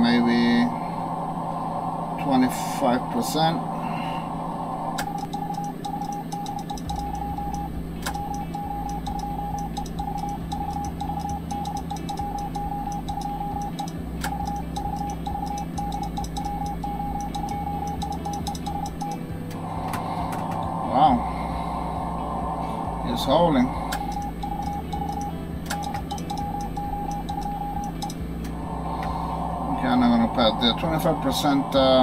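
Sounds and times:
low hum: 0:00.0 - 0:32.0
sharp clicks: 0:05.0 - 0:20.7, 0:23.9 - 0:29.2
morse code beeps: 0:05.0 - 0:20.8, 0:23.1 - 0:29.3.

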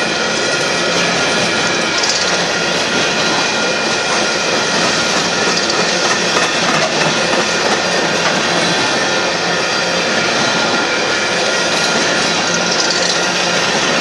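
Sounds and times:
train wheels rattling on rails: 0:00.0 - 0:14.0.

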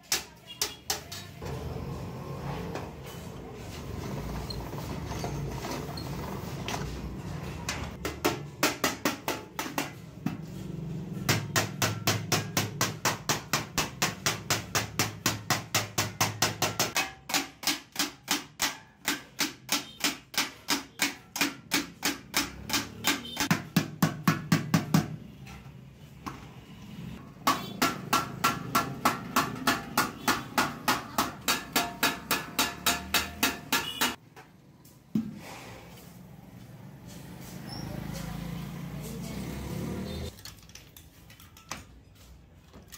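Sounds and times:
hammer beating sheet metal: 0:07.7 - 0:25.3, 0:27.3 - 0:34.2.

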